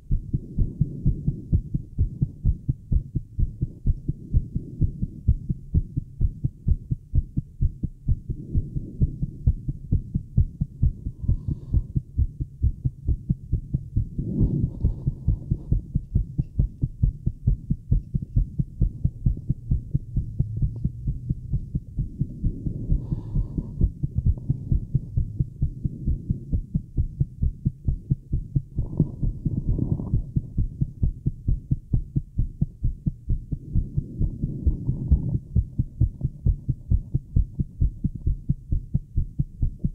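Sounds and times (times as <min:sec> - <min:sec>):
rapid heartbeat thumping: 0:00.0 - 0:39.9.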